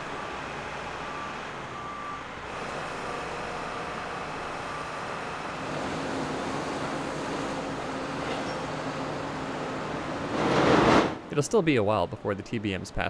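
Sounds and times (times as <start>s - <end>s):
vehicle backup alarm beeping: 0.0s - 9.2s
heavy equipment noise: 0.0s - 11.4s
traffic noise: 0.0s - 13.0s.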